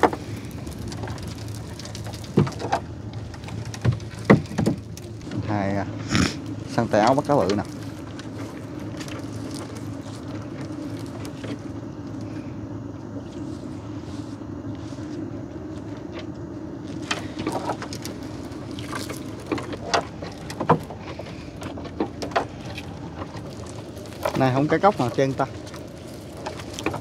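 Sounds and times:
small engine droning: 0:00.0 - 0:27.0
knocks and clicks from net and boat: 0:00.9 - 0:05.5, 0:18.8 - 0:23.5.

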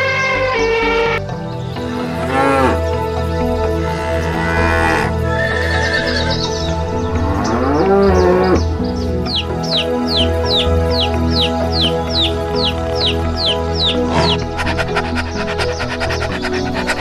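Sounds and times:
background music: 0:00.0 - 0:17.0
cattle mooing: 0:03.9 - 0:06.1, 0:07.2 - 0:08.6.

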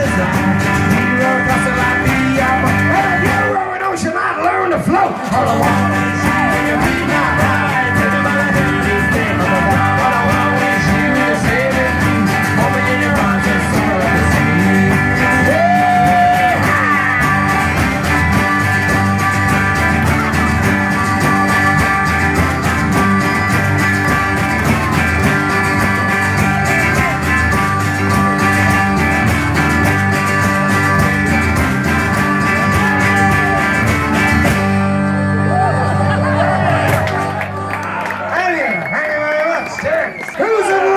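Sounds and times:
electric guitar: 0:00.0 - 0:03.6, 0:04.7 - 0:39.0
person singing: 0:00.0 - 0:03.6, 0:05.2 - 0:17.8, 0:34.7 - 0:37.9
acoustic guitar strumming: 0:00.0 - 0:03.8, 0:04.7 - 0:37.8
harmonica: 0:05.5 - 0:37.8.

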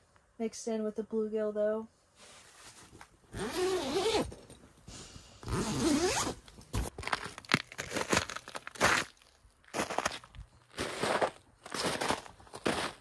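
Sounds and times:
tent zipper unzipping: 0:03.3 - 0:04.3, 0:05.4 - 0:06.4
crunching footsteps in snow: 0:06.8 - 0:13.0.

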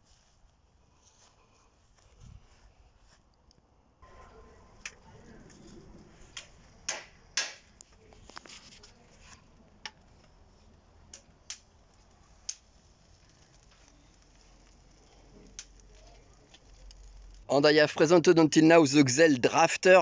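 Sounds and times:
charcoal clicks and pops: 0:04.8 - 0:09.0, 0:09.6 - 0:17.5.

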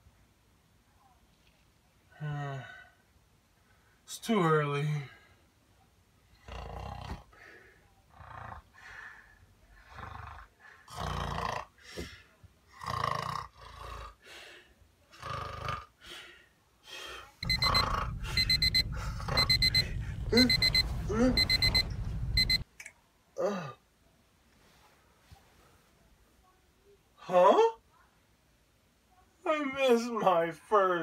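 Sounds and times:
alarm clock beeping: 0:17.4 - 0:22.6.

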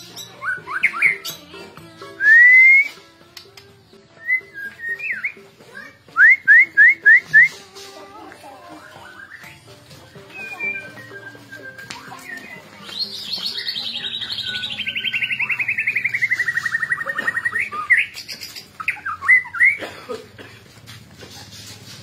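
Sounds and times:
bird trilling: 0:08.7 - 0:19.8.

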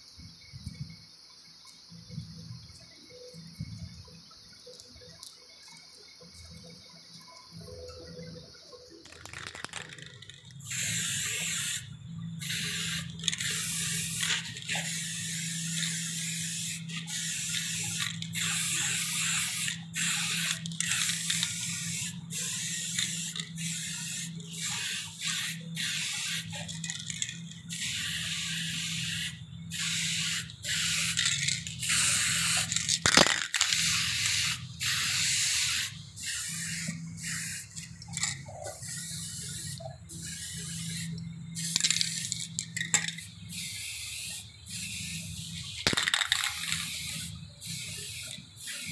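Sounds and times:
spray paint can hissing: 0:09.0 - 0:48.9.

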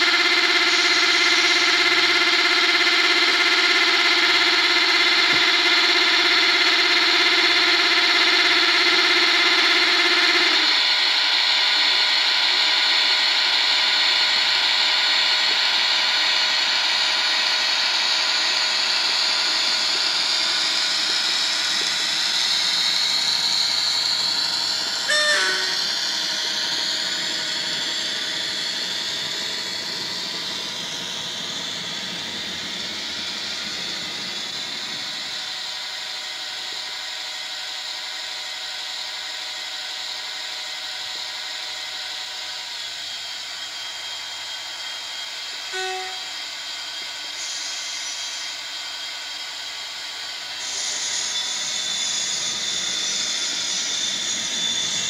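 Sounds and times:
model train diesel engine sound: 0:00.0 - 0:55.0
short pitched tone: 0:19.6 - 0:28.0, 0:45.7 - 0:46.4.

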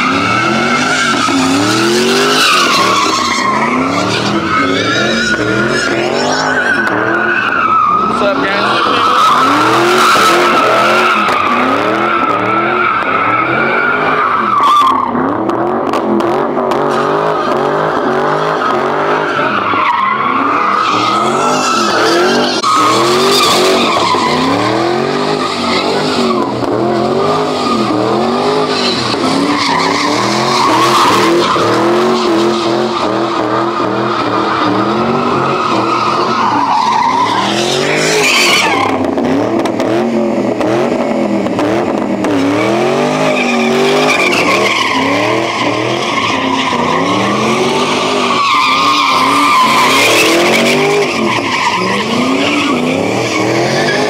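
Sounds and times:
car engine revving: 0:00.0 - 0:54.0
tires squealing: 0:00.0 - 0:54.0.

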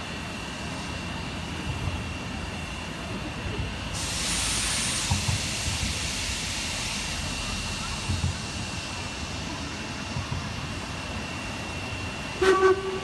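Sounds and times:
loud steam hiss: 0:03.8 - 0:13.0.

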